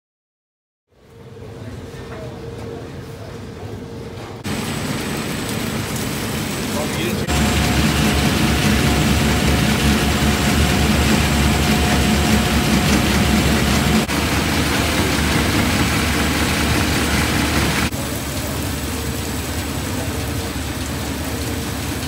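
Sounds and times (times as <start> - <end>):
machinery motor hum: 4.4 - 21.5.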